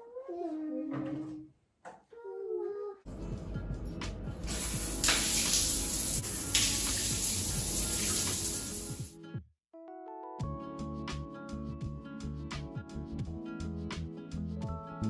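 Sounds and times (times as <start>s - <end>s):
music: 3.1s - 15.0s
shower spraying on tiled wall: 4.4s - 9.2s.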